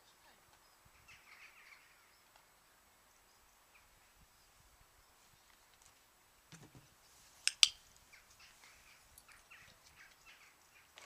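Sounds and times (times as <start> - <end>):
sharp clicks: 7.4 - 7.8.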